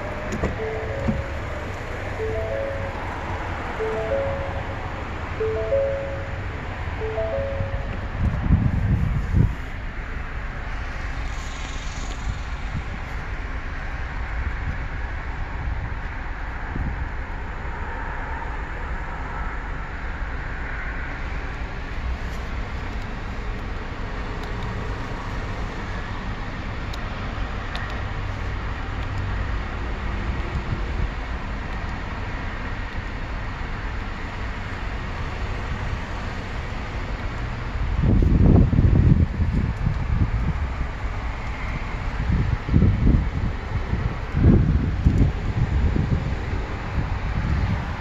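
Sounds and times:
car engine idling rumble: 0.0 - 17.7
car cabin idle hum: 0.3 - 3.1.

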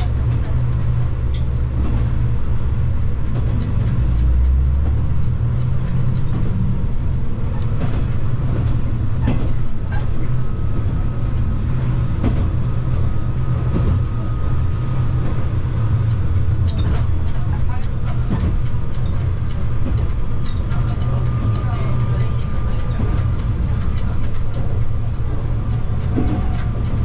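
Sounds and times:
diesel engine drone: 0.0 - 27.0.

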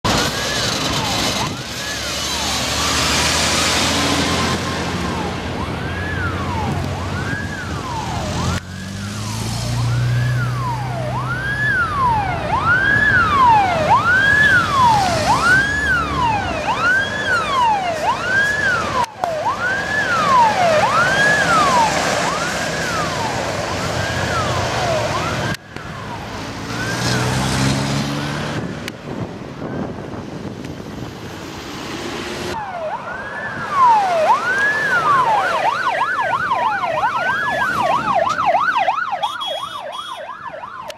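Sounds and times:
fire truck engine: 0.0 - 40.9
passing traffic: 0.0 - 40.9
electronic siren sweeping: 0.1 - 28.9, 32.2 - 40.9.

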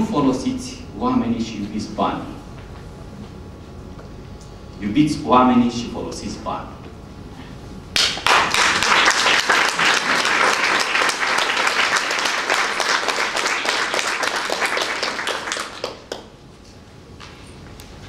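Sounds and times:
audience applauding: 8.0 - 16.3.

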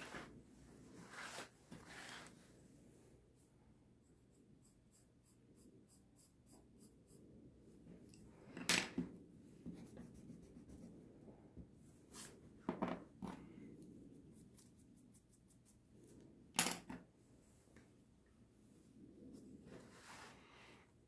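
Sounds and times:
pencil sketching strokes: 0.0 - 7.9, 12.0 - 12.5, 14.2 - 16.2, 19.4 - 20.7.

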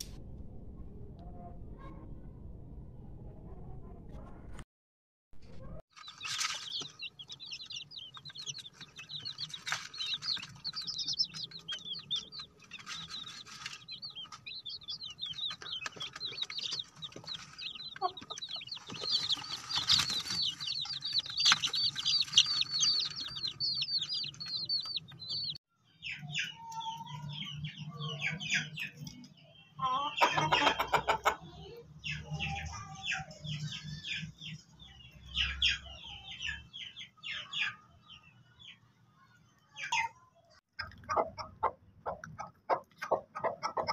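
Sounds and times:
chicks peeping: 5.6 - 43.9
chicken calls: 6.0 - 25.6, 29.8 - 34.4, 40.8 - 43.9.

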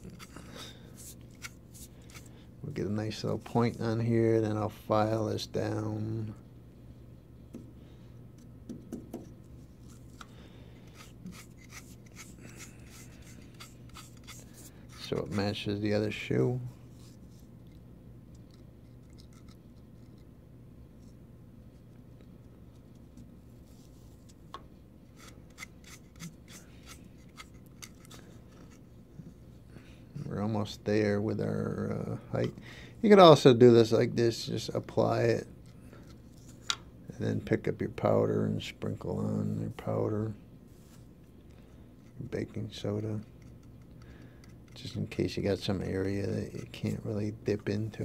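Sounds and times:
low steady hum: 0.0 - 48.0
faint rubbing and light ticks: 44.7 - 48.0.

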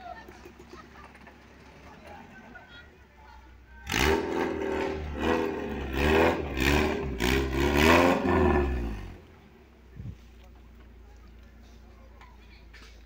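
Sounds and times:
off-road vehicle engine revving: 3.8 - 9.5.

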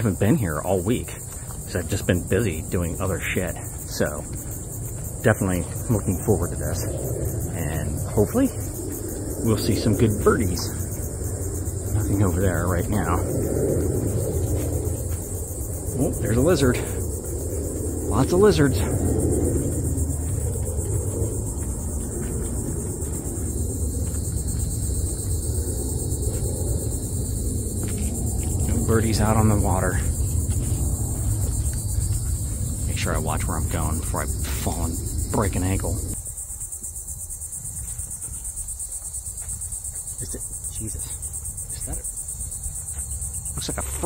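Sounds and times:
low rumble: 0.0 - 36.2
insects buzzing: 0.0 - 44.0.

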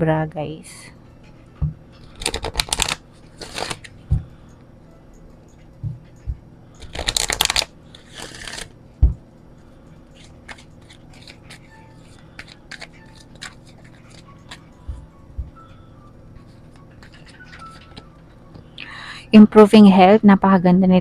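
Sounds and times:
cards shuffling: 2.1 - 3.9, 6.8 - 8.7, 10.2 - 14.7, 16.5 - 18.1
cards clicking: 2.2 - 3.9, 6.8 - 8.7, 10.2 - 14.6.

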